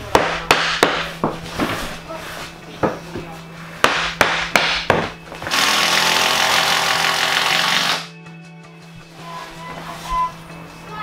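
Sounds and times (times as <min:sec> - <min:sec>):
hammer knocking on floorboards: 0:02.8 - 0:05.2
power tool running: 0:05.4 - 0:08.1.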